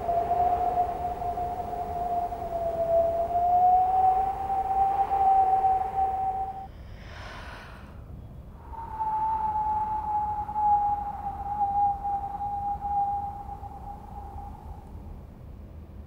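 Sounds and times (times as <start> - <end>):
steady high whistle tone: 0.0 - 6.8, 8.6 - 15.2
breathy hiss: 6.6 - 8.1.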